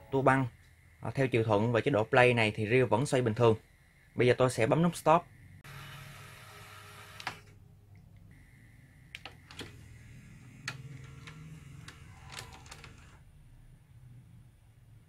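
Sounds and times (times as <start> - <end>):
tape mechanism whirring: 5.6 - 7.6, 9.1 - 13.2
tape mechanism clicking: 7.0 - 7.5, 9.1 - 13.2.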